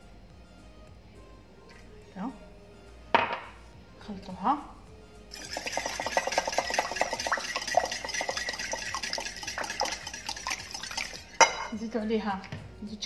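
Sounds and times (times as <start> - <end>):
whisk clicking against bowl: 5.4 - 11.7.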